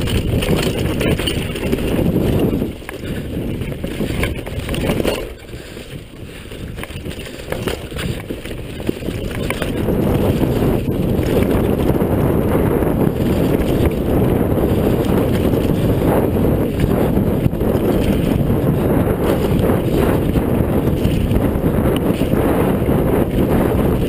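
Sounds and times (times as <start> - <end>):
tyre rumble on dirt: 0.0 - 5.4, 6.5 - 24.0
bike rattling: 0.0 - 24.0
wind buffeting microphone: 0.0 - 24.0.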